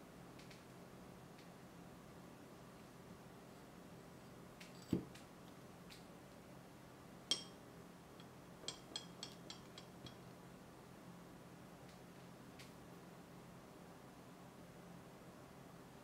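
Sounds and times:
metal spoon clinking on stone: 0:07.3 - 0:07.6, 0:08.2 - 0:10.2
small glassy clinks: 0:07.3 - 0:07.6, 0:08.2 - 0:10.3.

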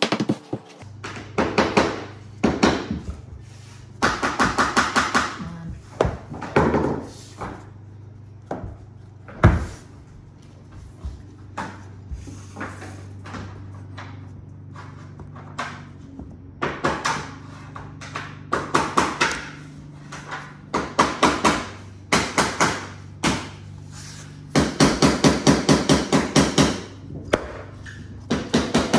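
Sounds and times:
floor planks knocking and clicking: 0:00.0 - 0:03.4, 0:04.0 - 0:07.7.

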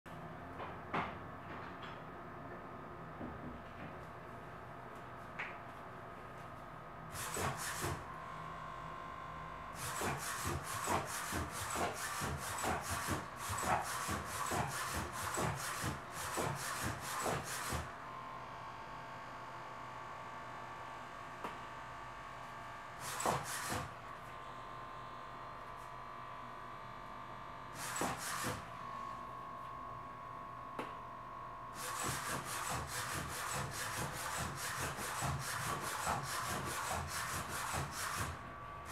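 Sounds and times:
robot leg servos whirring: 0:07.2 - 0:08.0, 0:09.8 - 0:17.8, 0:27.8 - 0:28.6, 0:31.8 - 0:38.4.

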